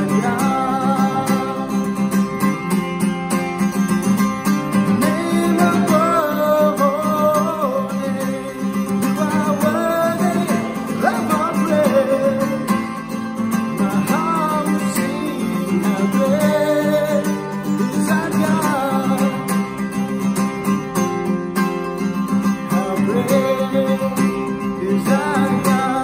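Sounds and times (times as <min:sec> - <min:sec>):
person singing: 0:00.0 - 0:02.0, 0:05.0 - 0:12.8, 0:13.7 - 0:19.5
acoustic guitar: 0:00.0 - 0:26.0.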